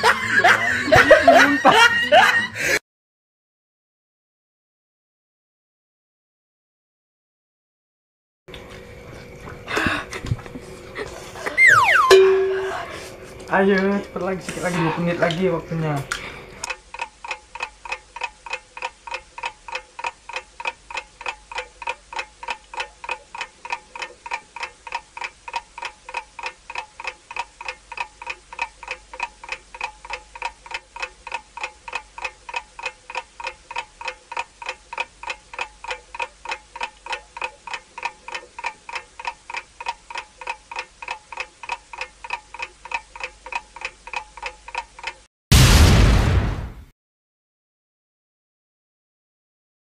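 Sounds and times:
clock ticking with bright ring: 0:11.6 - 0:12.8, 0:16.7 - 0:45.3.

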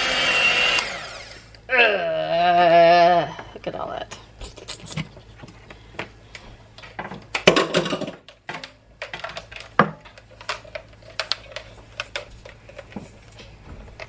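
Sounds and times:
kitchen items clicking and knocking: 0:07.0 - 0:14.0.

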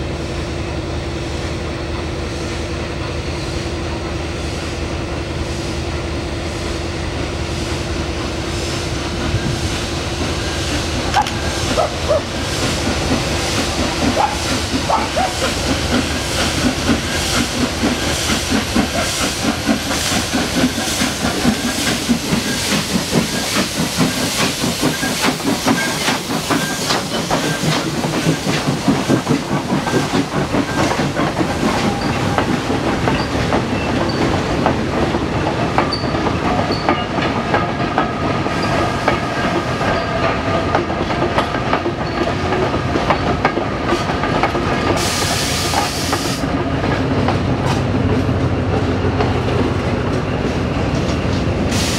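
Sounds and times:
steam locomotive exhaust beats: 0:00.1 - 0:51.9
hissing steam: 0:03.4 - 0:42.6, 0:43.2 - 0:46.8, 0:51.6 - 0:51.9
wagons clacking over rail joints: 0:11.0 - 0:45.0.

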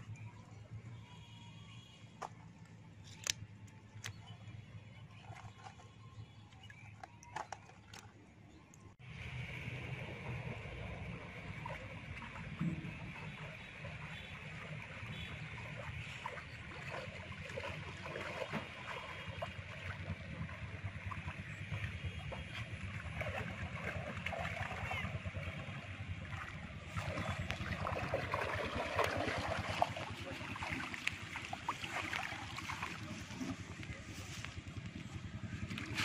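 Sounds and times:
water splashing and sloshing: 0:02.0 - 0:36.0
water running off net: 0:22.5 - 0:33.8.

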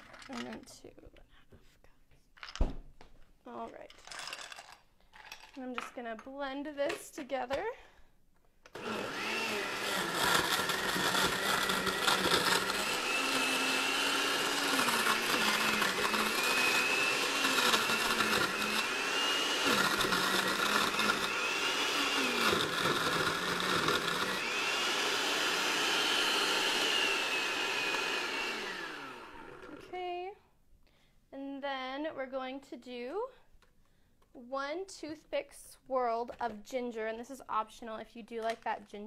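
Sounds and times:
blender crushing ice: 0:08.7 - 0:29.9.

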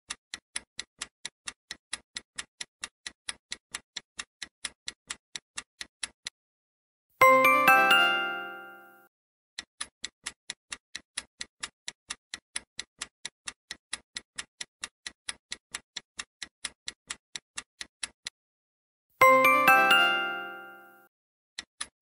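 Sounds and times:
clock-like ticking: 0:00.1 - 0:06.4, 0:09.6 - 0:18.4, 0:19.2 - 0:20.9, 0:21.6 - 0:22.0
bright chime: 0:07.2 - 0:09.1, 0:19.2 - 0:21.1.

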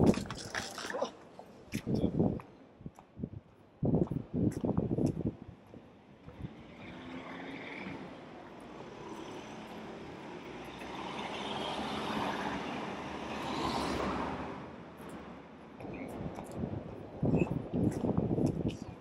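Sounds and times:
vehicle passing by: 0:08.9 - 0:14.6.

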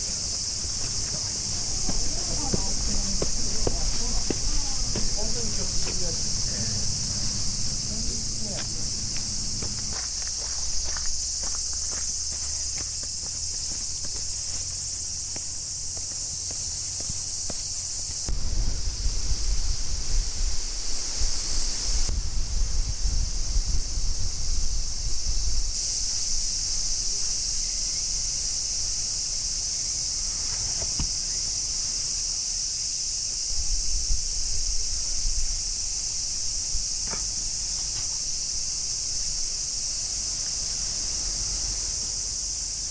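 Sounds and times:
footsteps on gravel: 0:00.0 - 0:18.2
cicadas chorus: 0:00.0 - 0:42.9
wind rumble on microphone: 0:18.2 - 0:28.3, 0:33.4 - 0:37.0.

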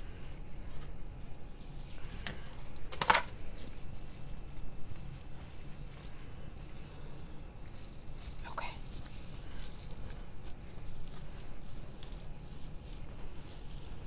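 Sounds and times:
floral picks rustling and crackling: 0:00.0 - 0:14.0.

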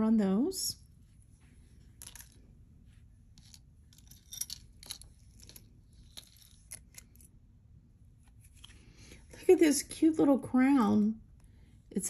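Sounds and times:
jewelry pieces clinking: 0:02.0 - 0:02.4, 0:03.4 - 0:07.2.

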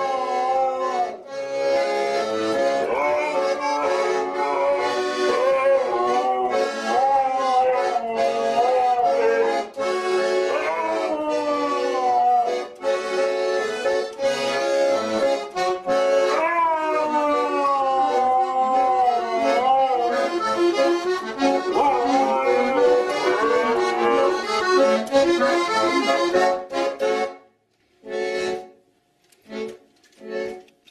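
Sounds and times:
dog howling: 0:00.0 - 0:01.2, 0:02.3 - 0:12.8, 0:16.3 - 0:20.6, 0:21.4 - 0:24.9
button accordion tune: 0:00.0 - 0:16.4, 0:18.1 - 0:28.8, 0:29.5 - 0:30.9.

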